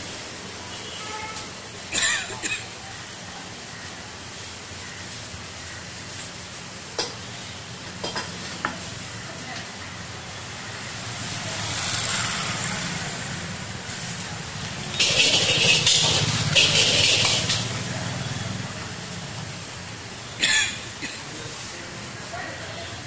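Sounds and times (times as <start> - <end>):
noodles sizzling in a wok: 2.7 - 20.2.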